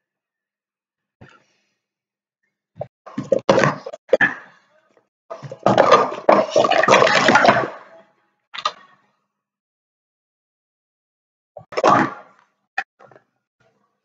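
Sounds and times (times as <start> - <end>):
plastic cups clattering: 5.4 - 7.9.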